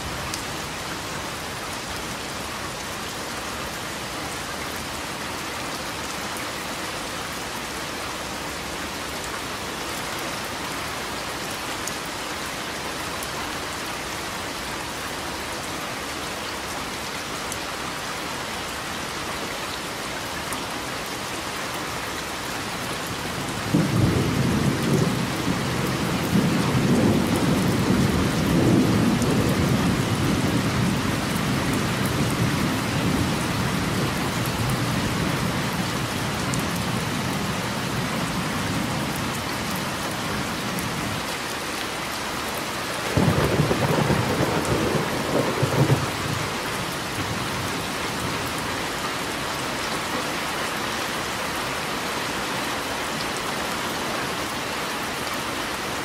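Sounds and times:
steady rain: 0:00.0 - 0:56.0
thunder rumbling: 0:43.1 - 0:47.6.

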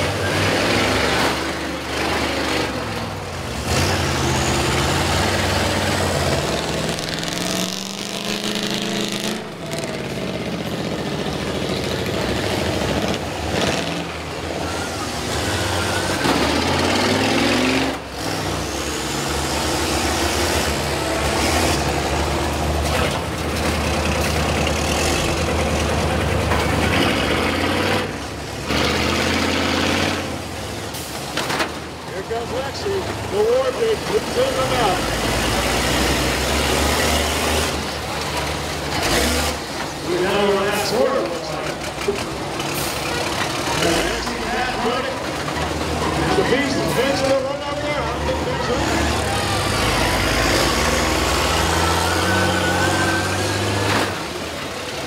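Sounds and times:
bus engines revving: 0:00.0 - 0:55.0.

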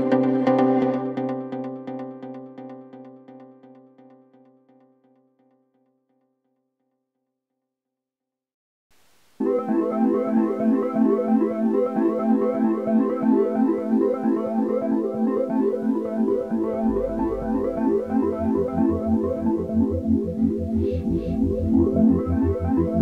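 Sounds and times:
steady bass line: 0:16.3 - 0:23.0.

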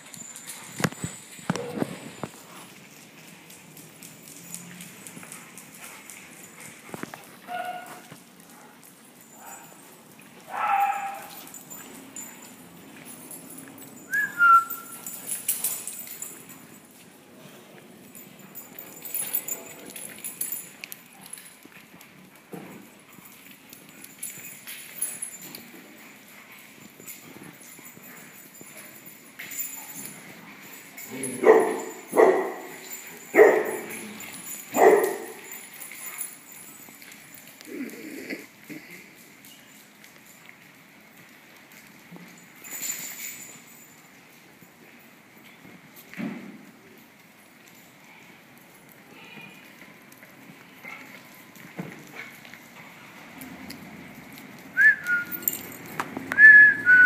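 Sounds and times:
dog barking: 0:07.5 - 0:08.0, 0:10.5 - 0:11.4, 0:31.3 - 0:32.8, 0:33.4 - 0:33.9, 0:34.7 - 0:35.5
dog whining: 0:37.6 - 0:38.9.

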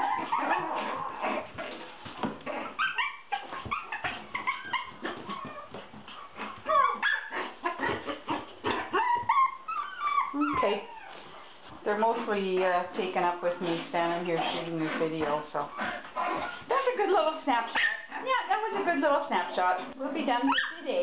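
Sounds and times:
puppies yipping and barking: 0:00.0 - 0:11.6, 0:17.7 - 0:19.0, 0:20.4 - 0:20.9.

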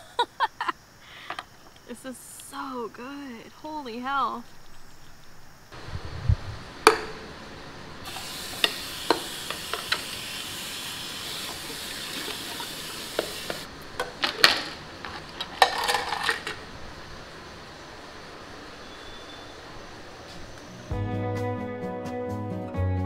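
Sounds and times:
dishes being scrubbed: 0:08.1 - 0:13.7
tap water running into sink: 0:08.1 - 0:13.7
dishes clattering: 0:11.5 - 0:16.6.

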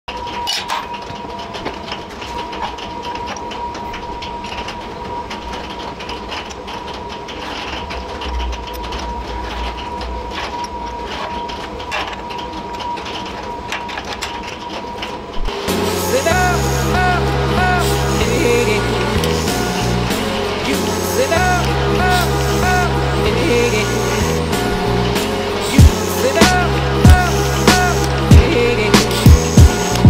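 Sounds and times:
steady hum: 0:00.1 - 0:30.0
steel plates clinking and scraping: 0:00.1 - 0:30.0.

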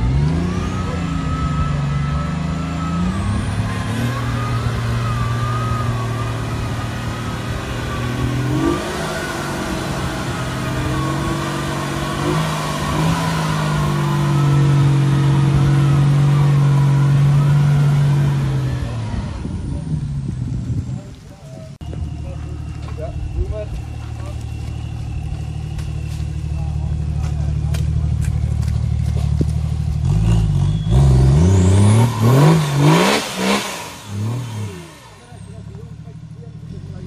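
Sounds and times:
vehicle engine running hard: 0:00.0 - 0:37.0
wavering whine: 0:21.4 - 0:28.5.

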